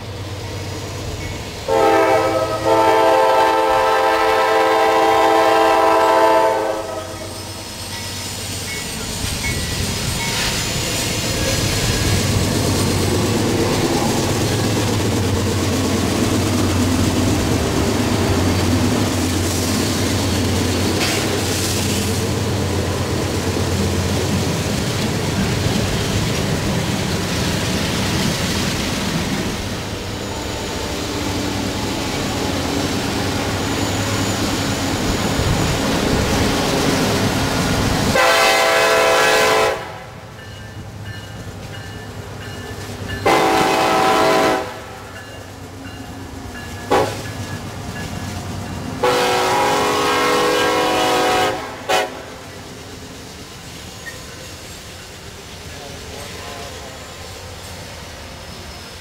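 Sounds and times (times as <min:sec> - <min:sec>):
diesel locomotive engine droning: 0:00.0 - 0:59.0
train wheels rolling on rails: 0:00.0 - 0:59.0
locomotive horn blast: 0:01.7 - 0:07.3, 0:38.1 - 0:40.2, 0:43.2 - 0:45.0, 0:46.9 - 0:47.2, 0:49.0 - 0:52.4.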